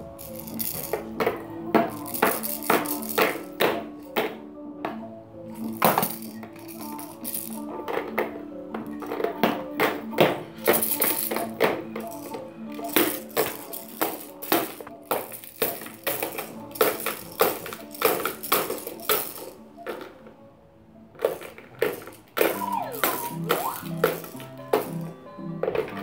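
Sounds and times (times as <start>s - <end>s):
plastic bead rattle clattering: 0.0s - 3.6s, 5.6s - 8.2s, 10.6s - 20.1s, 21.2s - 25.1s
background music: 0.0s - 26.0s.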